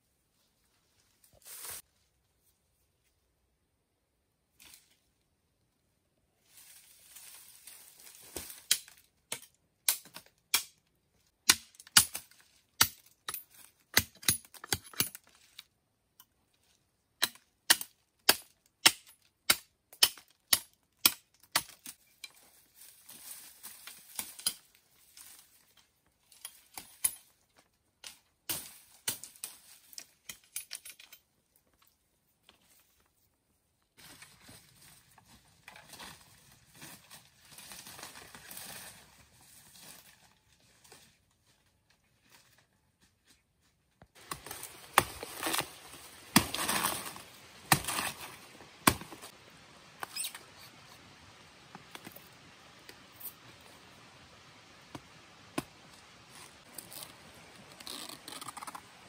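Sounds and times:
machete chopping wood: 12.8s - 15.1s, 46.3s - 49.3s
rustling through leaf litter: 34.0s - 42.6s, 44.2s - 49.8s.

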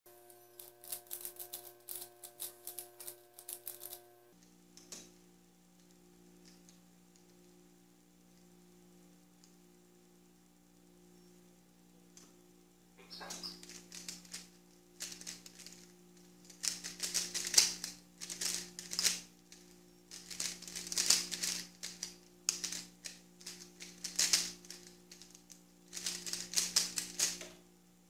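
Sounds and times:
puzzle cube clicking: 16.5s - 27.4s.

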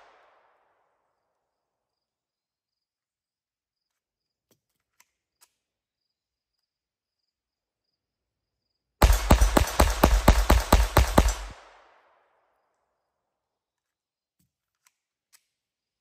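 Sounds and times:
faint insect chirping: 1.2s - 4.4s, 5.3s - 9.0s.

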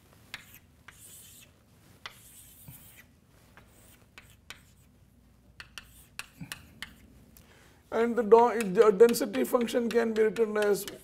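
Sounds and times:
chalk scratching on blackboard: 0.2s - 5.0s, 5.6s - 7.1s
chalk tapping on board: 0.3s - 3.0s, 3.6s - 4.9s, 5.5s - 7.1s, 8.5s - 11.0s.

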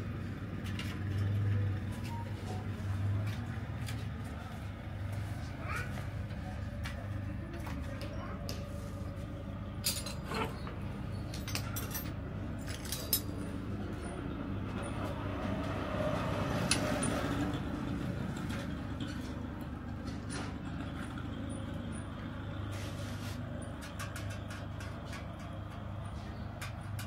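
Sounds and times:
road traffic rumble: 0.0s - 27.0s
metal tools clinking: 9.8s - 13.6s.

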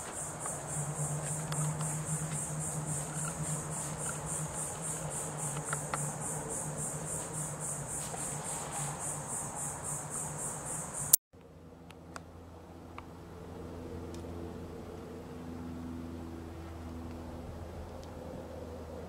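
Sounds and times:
insects chirring: 0.0s - 11.2s.

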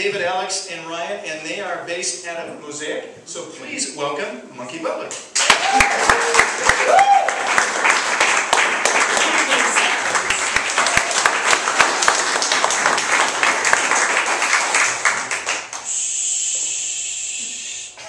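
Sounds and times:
audience applauding: 5.4s - 16.2s.

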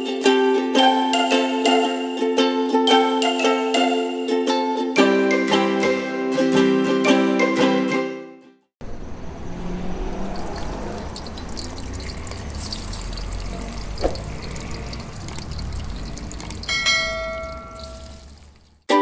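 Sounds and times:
low hum: 8.8s - 18.8s.

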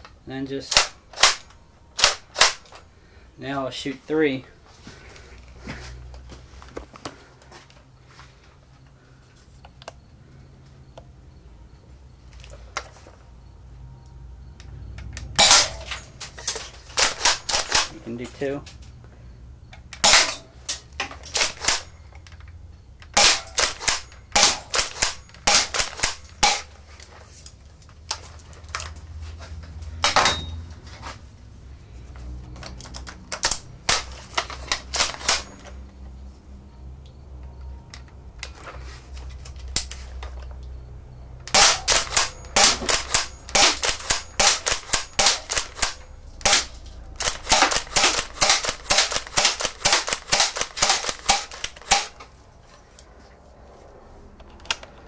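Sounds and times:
airsoft shotgun shots: 15.4s - 15.9s, 23.2s - 26.7s, 41.5s - 52.2s.

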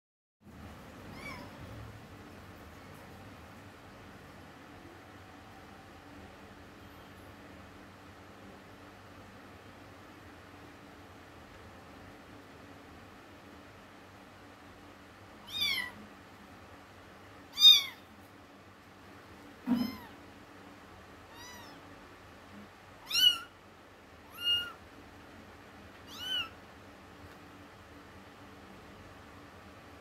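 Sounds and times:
kitten mewing: 1.1s - 1.6s, 15.4s - 16.1s, 17.5s - 18.0s, 19.6s - 20.2s, 21.3s - 21.8s, 23.0s - 23.5s, 24.3s - 24.8s, 26.0s - 26.6s.

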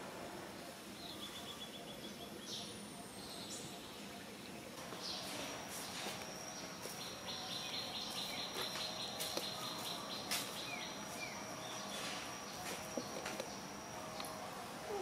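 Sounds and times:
birds chirping: 0.6s - 15.0s
high-pitched insect whine: 4.9s - 15.0s.

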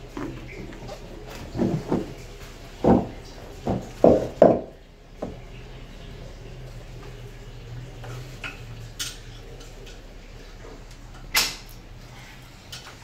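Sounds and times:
basin clicks and knocks: 0.0s - 5.6s.

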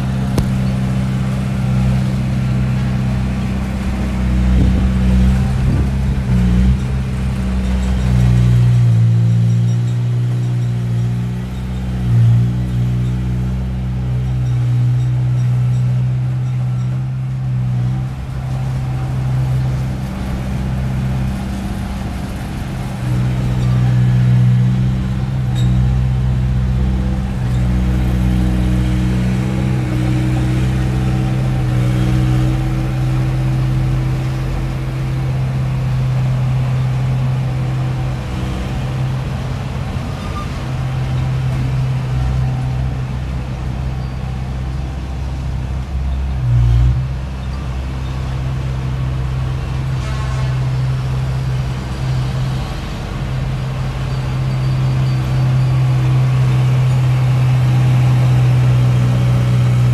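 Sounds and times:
bulldozer jolt: 0.0s - 44.1s
bulldozer diesel engine droning: 0.0s - 59.9s.

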